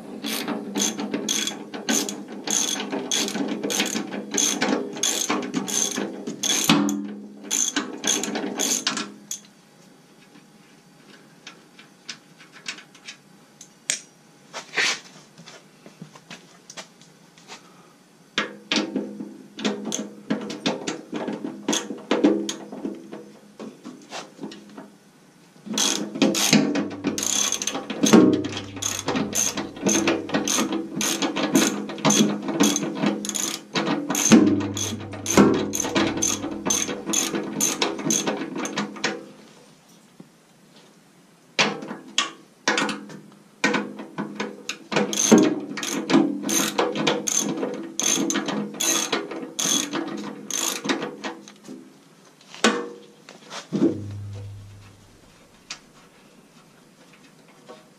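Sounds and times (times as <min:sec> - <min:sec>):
ratchet wrench clicking rapidly: 0:00.2 - 0:06.8, 0:07.5 - 0:09.4, 0:25.8 - 0:33.6, 0:34.2 - 0:38.3.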